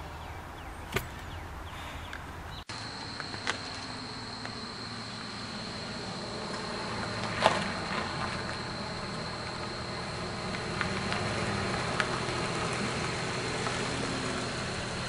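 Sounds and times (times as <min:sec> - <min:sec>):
minivan approaching: 0:00.0 - 0:15.0
high-pitched insect drone: 0:02.7 - 0:11.7.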